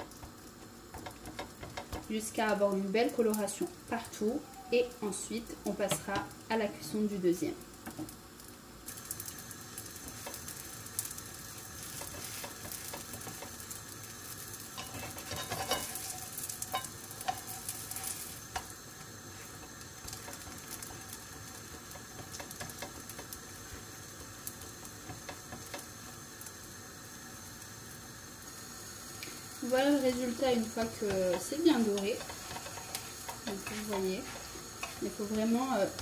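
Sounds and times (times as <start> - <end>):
pastry sizzling in a pan: 0.0 - 36.0
spatula scraping and knocking: 11.9 - 13.6, 14.8 - 18.7, 30.9 - 35.4.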